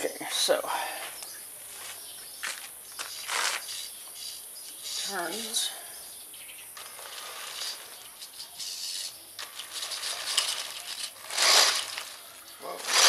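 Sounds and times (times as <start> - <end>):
grit crackling under tyres: 1.2 - 5.7, 6.3 - 13.0
toy car motor whirring: 6.8 - 13.0.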